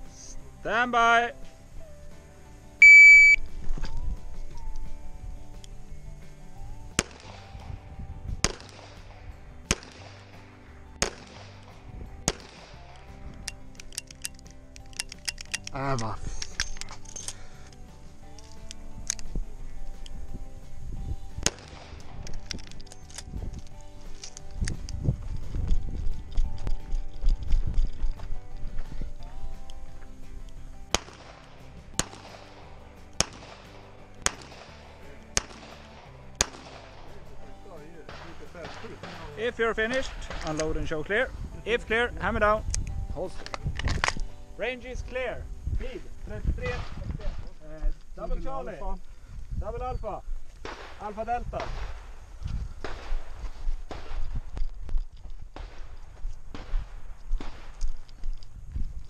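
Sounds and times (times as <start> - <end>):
music playing: 0.0 - 46.5.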